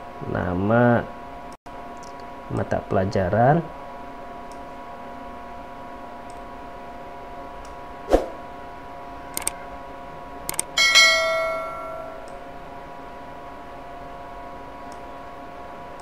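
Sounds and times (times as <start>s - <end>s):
notification bell chime: 10.8s - 12.3s.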